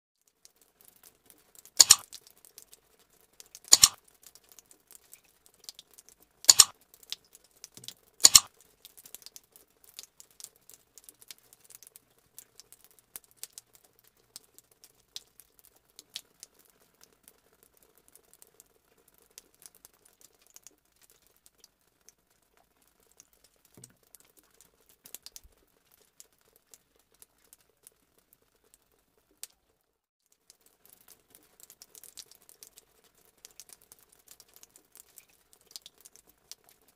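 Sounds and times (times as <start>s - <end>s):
faint ticking and crinkling: 0.2s - 36.9s
mouse click sound effects: 1.8s - 2.0s, 3.7s - 4.0s, 6.5s - 6.7s, 8.2s - 8.5s.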